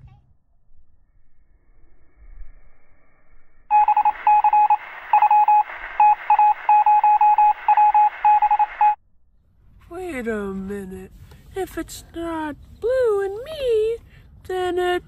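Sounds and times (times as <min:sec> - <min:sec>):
rapid electronic beeps: 0:03.7 - 0:09.0.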